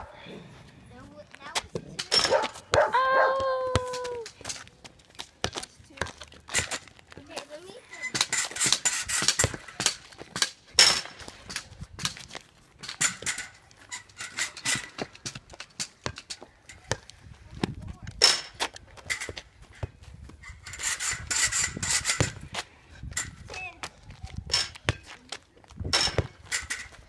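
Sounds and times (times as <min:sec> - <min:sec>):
basketball bouncing: 0:01.7 - 0:04.2, 0:05.4 - 0:07.4, 0:08.1 - 0:12.3, 0:22.1 - 0:22.4, 0:26.0 - 0:26.5.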